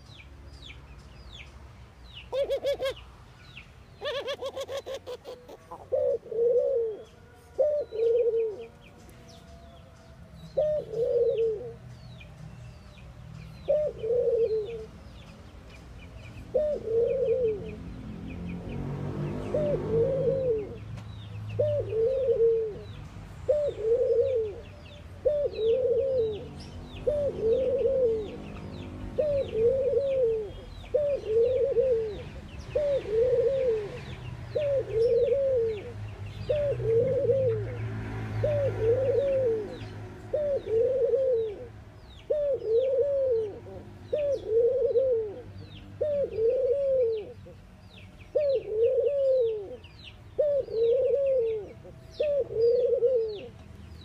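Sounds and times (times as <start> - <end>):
small birds chirping: 0.0 - 54.0
dove cooing: 2.3 - 3.0, 4.0 - 8.9, 10.5 - 11.8, 13.6 - 15.0, 16.5 - 17.9, 19.3 - 20.9, 21.6 - 47.6, 48.3 - 53.6.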